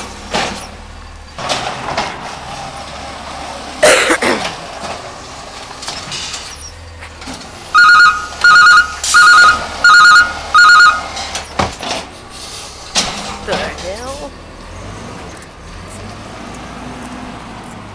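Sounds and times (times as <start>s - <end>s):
truck engine idling: 0.0s - 16.6s
warbling warning beeps: 7.8s - 11.2s.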